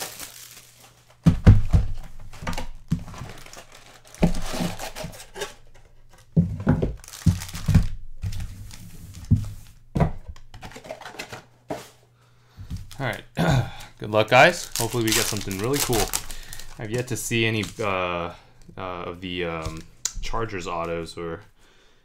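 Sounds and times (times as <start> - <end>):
wrappers crinkling and tearing: 0.0 - 1.2, 2.0 - 6.3, 6.9 - 9.8, 12.8 - 18.0
packs thunking on a table: 6.4 - 8.5, 12.6 - 13.0.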